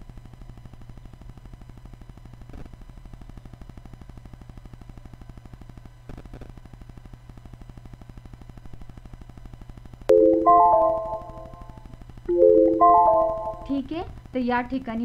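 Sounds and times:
steady hum: 7.0s - 14.4s.

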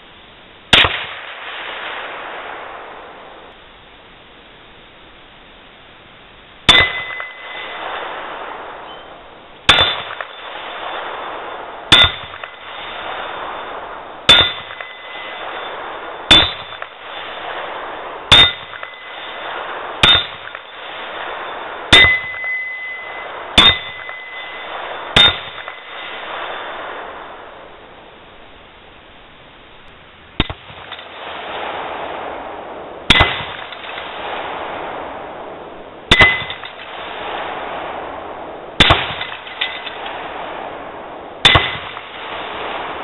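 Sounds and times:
bullets clanging on steel plate: 6.7s - 7.7s, 11.9s - 12.6s, 14.3s - 15.2s, 16.3s - 16.9s, 18.3s - 19.0s, 20.0s - 20.7s, 21.9s - 24.6s, 25.2s - 25.8s, 36.1s - 36.8s, 38.8s - 40.0s.

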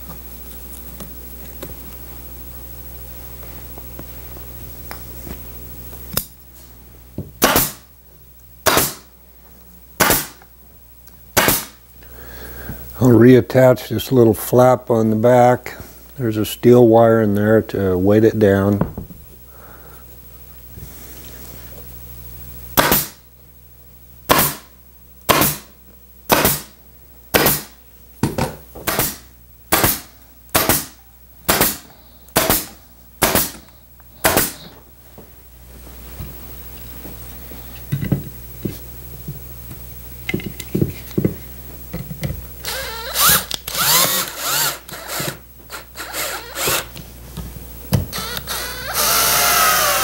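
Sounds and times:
cordless drill bursts: 42.6s - 46.9s, 48.1s - 50.0s.

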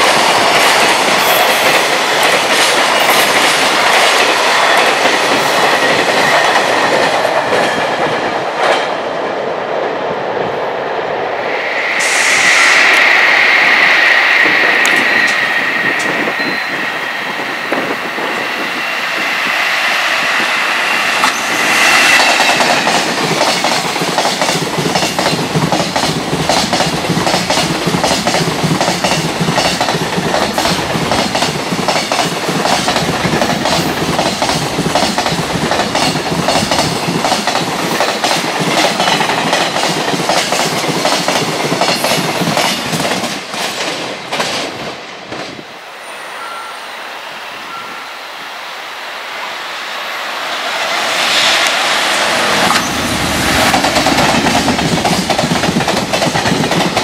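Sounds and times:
freight train passing: 0.0s - 57.0s.

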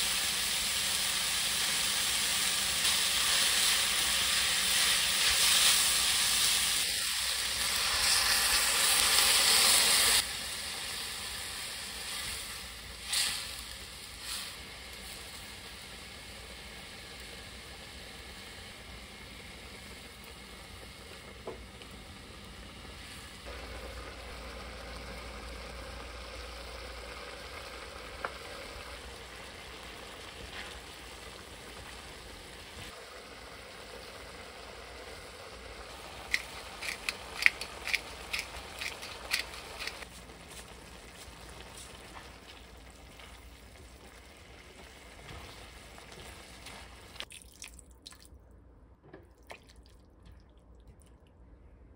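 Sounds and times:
sauce sizzling in a wok: 0.0s - 47.3s
spatula stirring: 36.3s - 42.2s.

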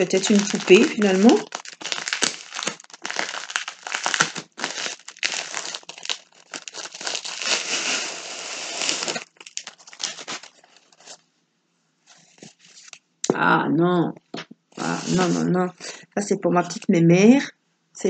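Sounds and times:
plastic envelope crinkling: 0.0s - 11.2s, 12.1s - 13.0s.

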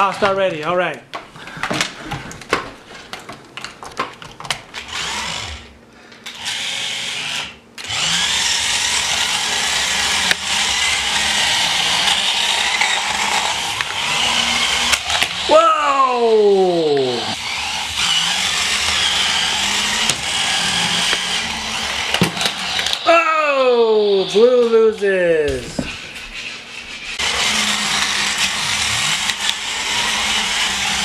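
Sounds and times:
toy car motors whirring: 4.8s - 31.0s.

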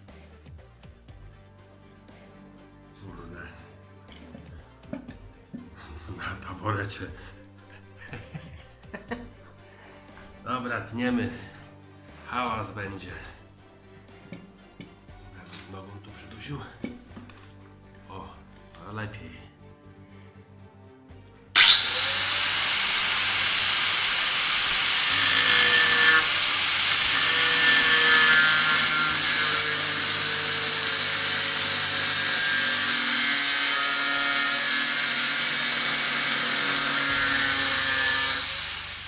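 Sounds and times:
angle grinder cutting metal: 21.6s - 39.0s.

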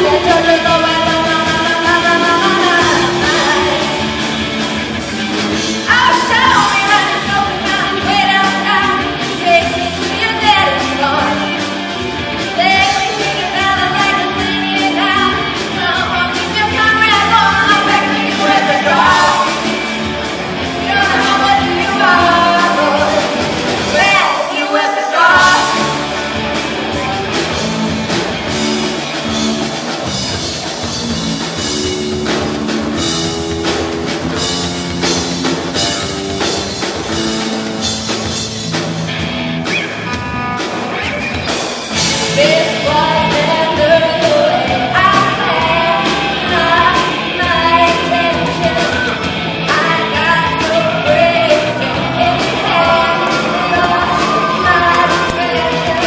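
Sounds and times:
woman singing: 0.0s - 4.3s, 5.8s - 11.7s, 12.5s - 20.0s, 20.7s - 26.1s, 42.0s - 56.0s
live rock band playing: 0.0s - 56.0s.

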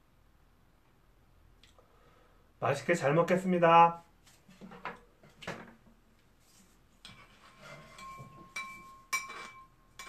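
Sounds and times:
metal spoon clinking ceramic bowl: 7.8s - 10.0s.

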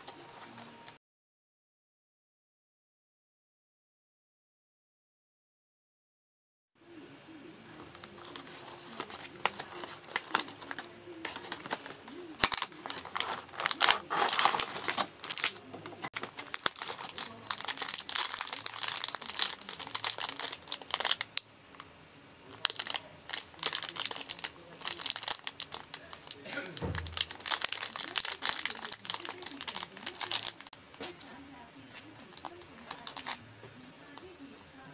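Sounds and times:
cardboard and plastic crinkling: 7.9s - 21.3s, 22.6s - 33.4s.

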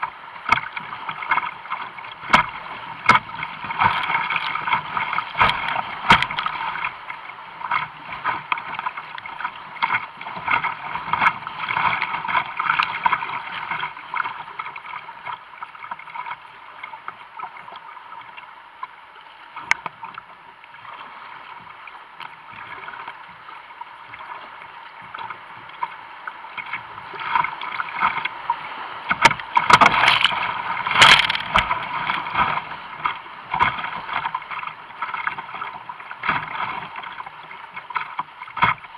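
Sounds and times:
waves splashing over boat: 0.0s - 38.9s
whitewater rushing: 25.8s - 37.2s.

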